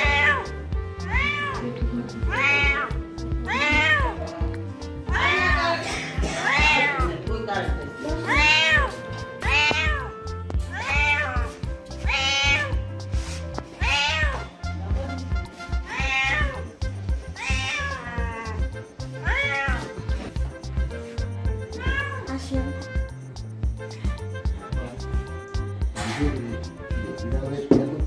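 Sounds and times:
cat meowing: 0.0 - 7.2, 8.2 - 12.9, 13.8 - 14.6, 15.6 - 20.0, 21.6 - 23.0
background music with steady beat: 0.0 - 28.0.

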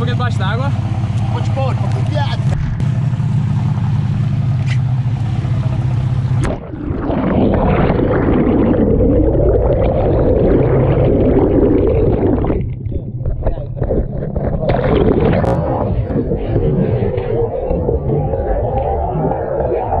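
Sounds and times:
boat engine running: 0.0 - 20.0
muffled underwater rushing bubbles: 5.5 - 20.0
water splashing: 6.1 - 20.0.

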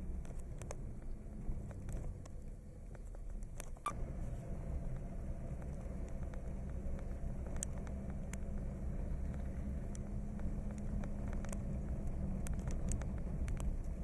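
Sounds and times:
engine and tyre rumble: 0.0 - 14.0
light clicks and rattles: 4.8 - 14.0.

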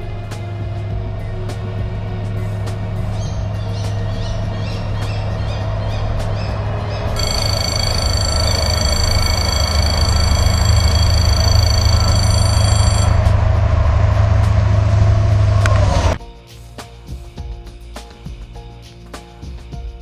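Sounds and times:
train rumble: 0.0 - 16.2
high steady whine: 7.1 - 16.2.

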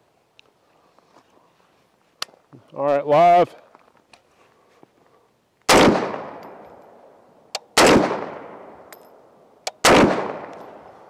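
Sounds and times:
rifle shots with long echo: 5.7 - 11.0.

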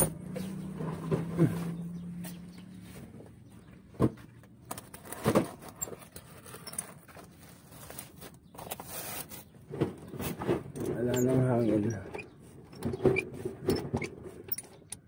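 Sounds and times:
hand tools clicking on metal: 13.2 - 15.0.

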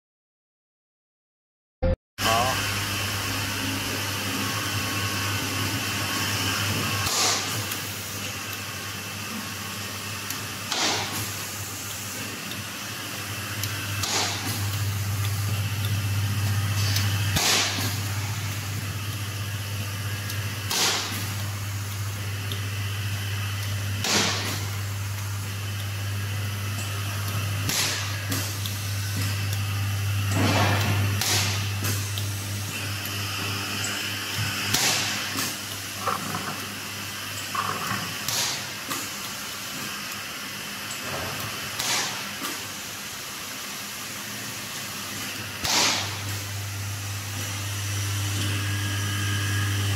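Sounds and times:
low machine hum: 2.2 - 49.9
stud welder cracks: 45.6 - 46.4.

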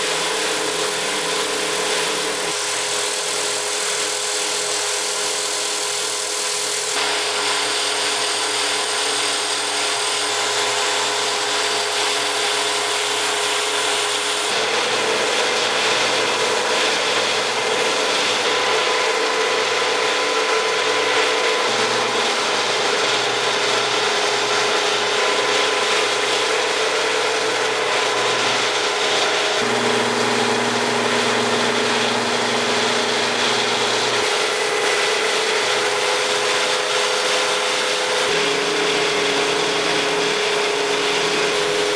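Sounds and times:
milling machine cutting aluminium: 0.0 - 41.9.

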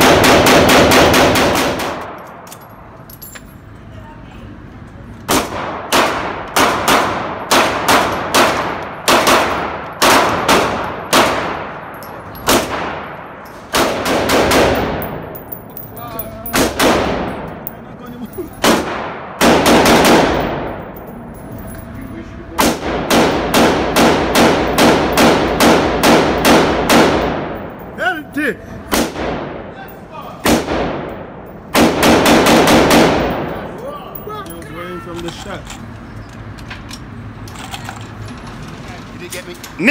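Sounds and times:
handgun shots echoing indoors: 12.4 - 15.2, 22.6 - 27.7.

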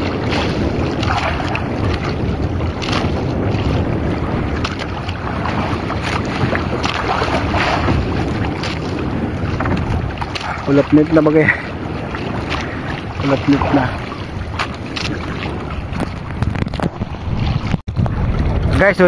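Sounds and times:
water splashing against boat: 0.0 - 19.0
wind rushing over microphone: 0.0 - 19.0.

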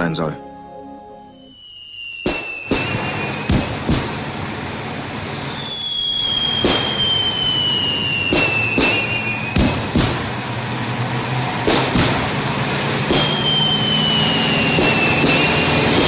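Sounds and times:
high whistle falling in pitch: 0.0 - 4.0, 5.4 - 9.8, 13.1 - 16.0
truck engines humming: 2.9 - 16.0
blast charges banging: 11.6 - 16.0.

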